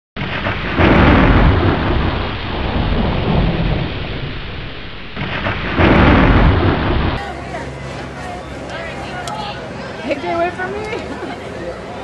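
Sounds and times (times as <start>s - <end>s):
thunder rumbling: 0.2s - 8.2s.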